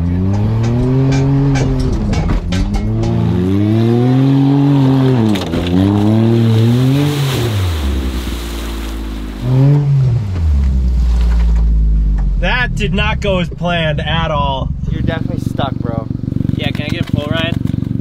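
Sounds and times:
small car engine revving: 0.0s - 8.2s.

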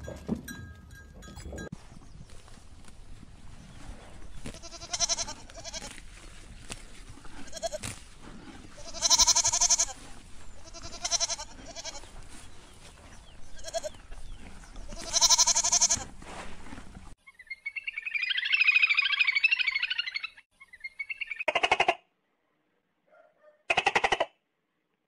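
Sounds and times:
goats bleating: 4.4s - 6.0s, 7.3s - 7.9s, 8.8s - 12.1s, 13.5s - 14.0s, 14.8s - 16.1s.

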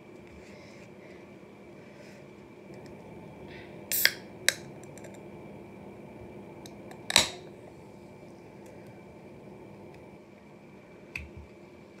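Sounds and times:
can opening crack and hiss: 3.9s - 5.2s, 6.7s - 7.5s.

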